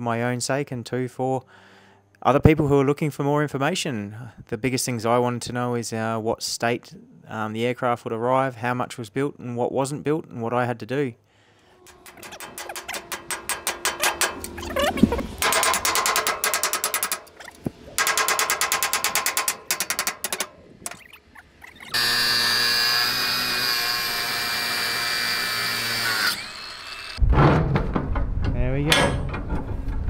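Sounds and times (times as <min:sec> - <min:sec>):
metallic strikes and rattling: 0:11.7 - 0:21.9, 0:27.2 - 0:30.0
power tool whining: 0:18.8 - 0:27.2.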